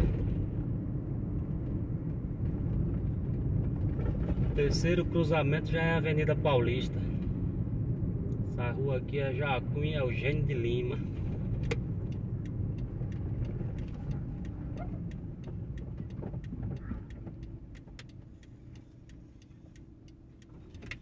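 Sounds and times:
car engine and road rumble: 0.0 - 21.0
turn signal clicking: 11.3 - 21.0.

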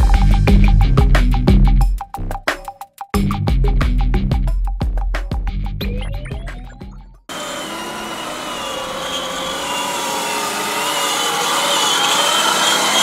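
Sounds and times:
music: 0.0 - 7.3
toy car electric motor whine: 7.3 - 13.0.

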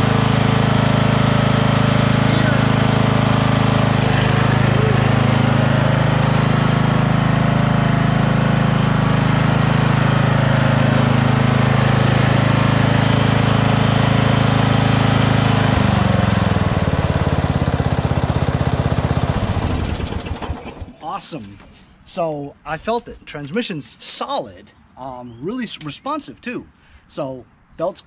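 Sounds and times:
lawn tractor engine running: 0.0 - 21.6.

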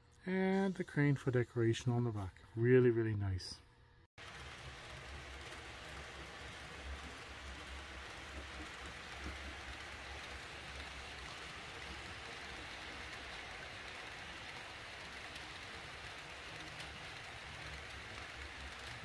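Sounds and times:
model train wheels clattering: 4.2 - 19.0.

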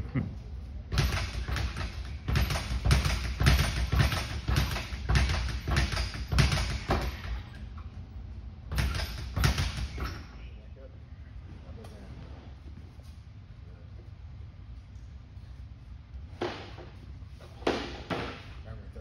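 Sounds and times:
speed bag being punched: 0.9 - 7.6, 8.7 - 10.3.

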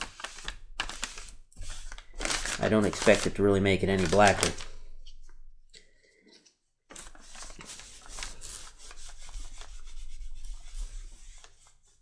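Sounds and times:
paper towel rubbing on leather: 7.0 - 12.0.

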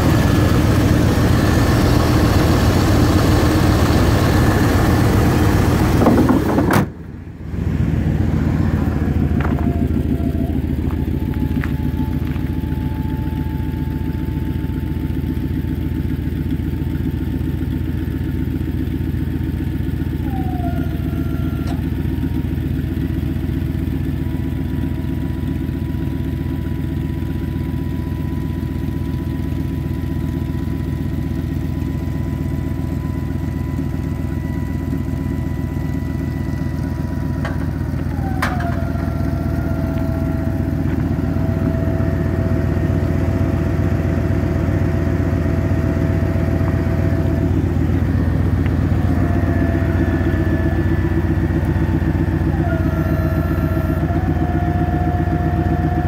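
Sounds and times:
pickup truck engine running: 0.0 - 56.0
thin mechanical whine: 8.3 - 17.1, 20.0 - 56.0.

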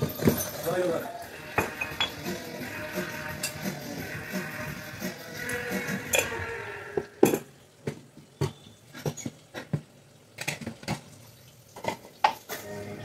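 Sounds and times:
clinks of utensils and dishes: 0.0 - 2.4, 3.3 - 3.8, 5.5 - 6.4, 7.0 - 7.5, 8.4 - 9.8.

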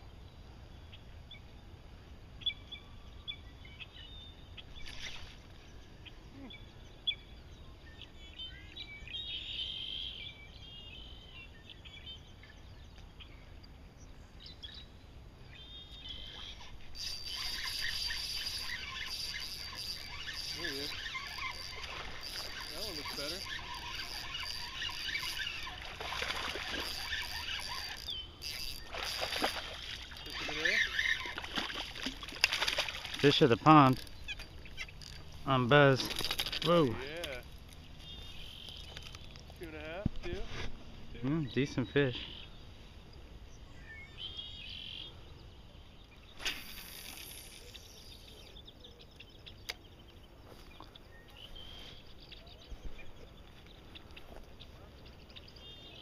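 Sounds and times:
faint bird chirps: 2.4 - 31.8, 36.6 - 40.0, 41.2 - 56.0
lure splashing on water: 16.3 - 35.3.

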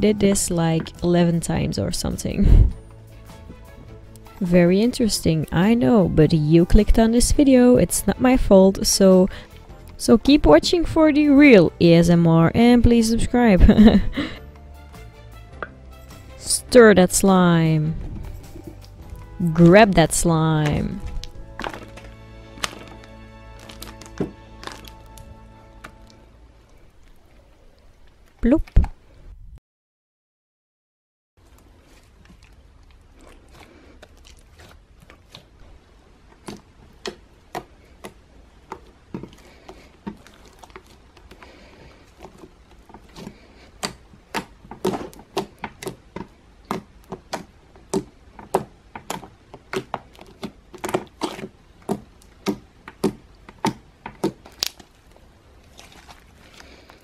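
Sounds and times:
slime clicking and popping: 43.8 - 54.9.

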